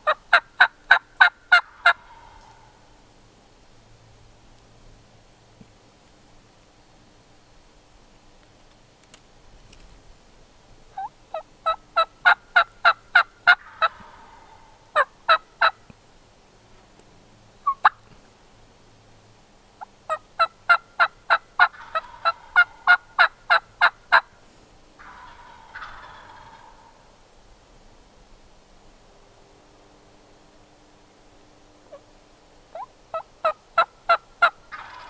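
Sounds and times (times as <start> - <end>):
turkey cluck: 0.0 - 2.9, 11.0 - 15.8, 17.6 - 18.0, 20.1 - 24.3, 25.0 - 27.1, 32.7 - 35.0
turkey yelping: 0.0 - 2.9, 11.0 - 15.8, 17.6 - 18.0, 20.1 - 24.2, 25.0 - 27.0, 32.7 - 35.0.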